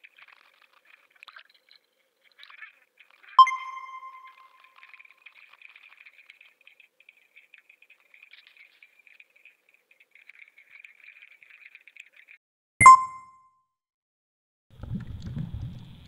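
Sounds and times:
muffled water splashing: 14.7 - 16.0.

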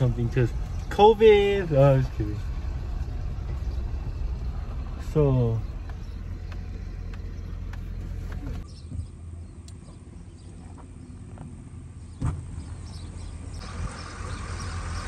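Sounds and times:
outdoor ambience: 0.0 - 15.0
truck engine rumbling: 0.0 - 15.0
sharp thump: 12.2 - 12.6.

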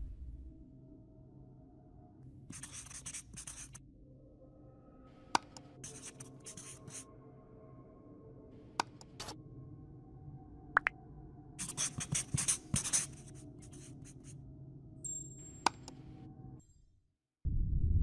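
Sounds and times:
marker scratching on surface: 2.5 - 3.8, 5.4 - 7.0, 11.6 - 14.4.

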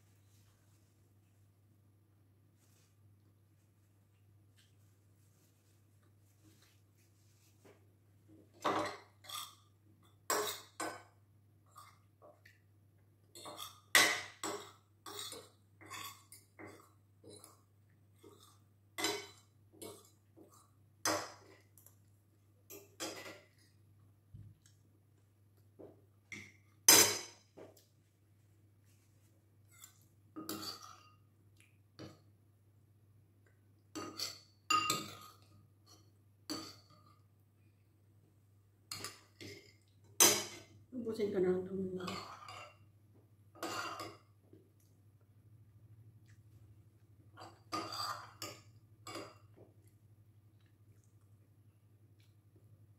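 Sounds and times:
cutlery clinking on a plate: 26.4 - 27.5, 34.0 - 37.0.

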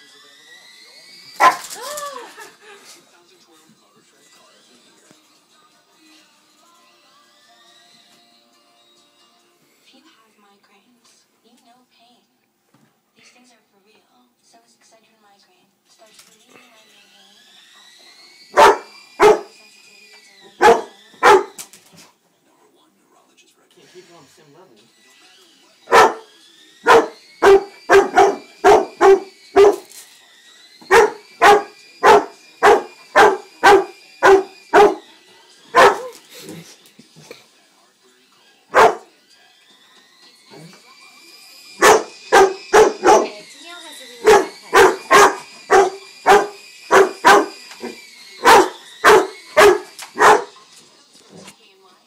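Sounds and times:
toy helicopter motor whine: 0.0 - 5.6, 6.3 - 9.3, 15.9 - 22.0, 23.7 - 52.0
dog barking: 1.4 - 1.7, 18.5 - 19.5, 20.6 - 21.6, 25.9 - 29.9, 30.9 - 35.0, 35.7 - 36.2, 38.7 - 39.1, 41.8 - 43.4, 44.2 - 50.6.

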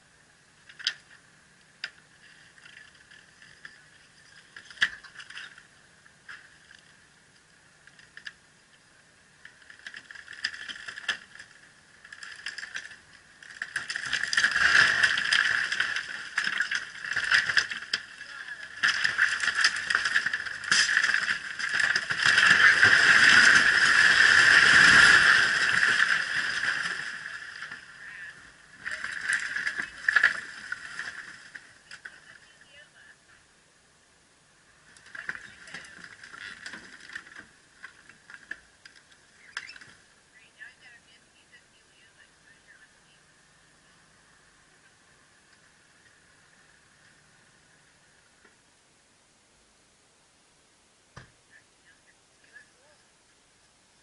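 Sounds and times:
timber creaking and cracking: 1.8 - 8.4, 9.4 - 32.3, 34.8 - 40.1
wooden building collapsing: 12.0 - 31.8.

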